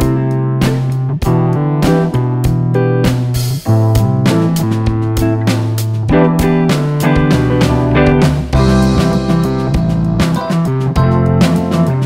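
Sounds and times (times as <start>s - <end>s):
instrumental music sustained notes: 3.7s - 12.0s.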